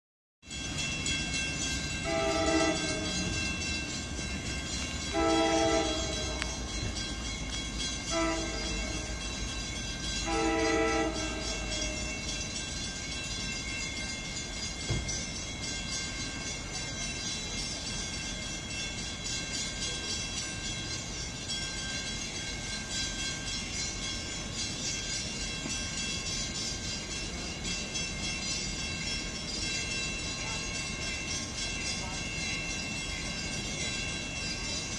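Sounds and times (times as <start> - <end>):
train rumbling: 0.4 - 34.9
locomotive air horn blasts: 2.0 - 3.3, 5.1 - 6.5, 8.1 - 8.8, 10.2 - 12.0.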